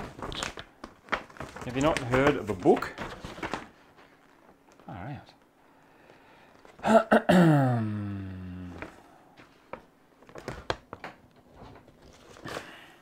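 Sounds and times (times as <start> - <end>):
paper and parts being handled: 0.0 - 4.9, 8.8 - 12.8
man groaning: 6.8 - 8.9.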